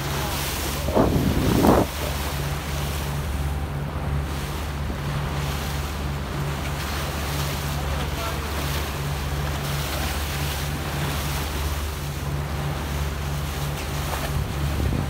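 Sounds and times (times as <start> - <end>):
boat engine running: 0.0 - 15.0
water rushing past hull: 0.0 - 15.0
wind buffeting microphone: 0.3 - 2.3, 14.3 - 15.0.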